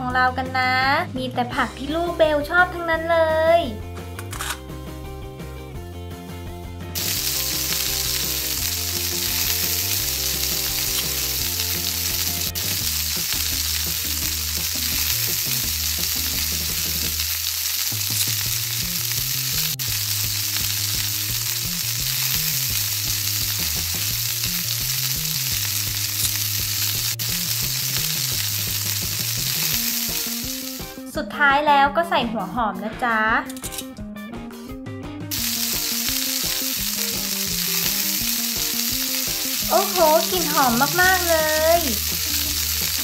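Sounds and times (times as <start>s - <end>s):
background music: 0.0s - 43.0s
frying sizzle: 7.0s - 31.1s, 35.3s - 43.0s.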